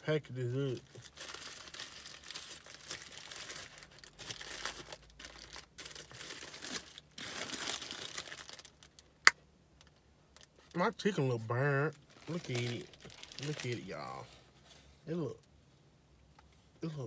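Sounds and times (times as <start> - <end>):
paper wrapper crinkling and tearing: 0.6 - 9.1, 11.9 - 14.2.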